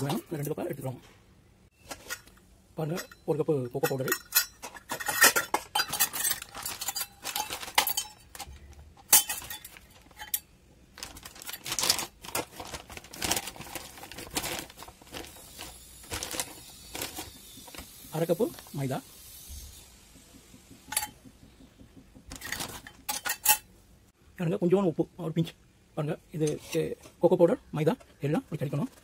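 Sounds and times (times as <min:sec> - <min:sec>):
metal cup and sieve clinking: 0:01.8 - 0:12.4, 0:20.9 - 0:21.2, 0:22.3 - 0:23.7.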